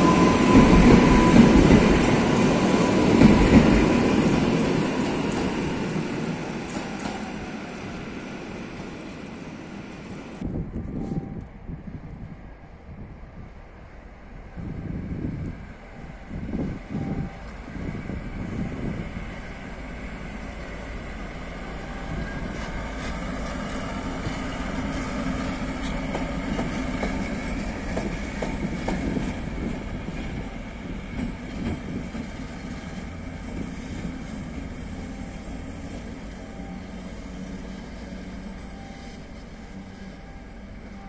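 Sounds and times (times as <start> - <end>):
locomotive engine drone: 0.0 - 41.0
wheels clacking over rail joints: 19.8 - 36.4.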